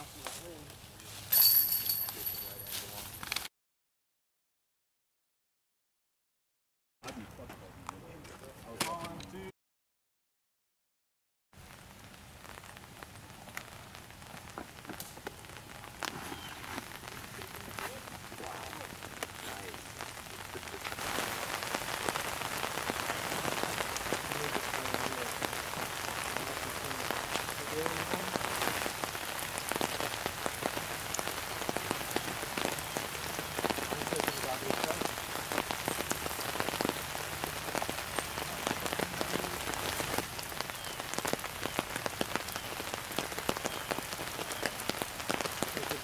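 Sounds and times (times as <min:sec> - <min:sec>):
steady rain falling: 0:11.6 - 0:46.0.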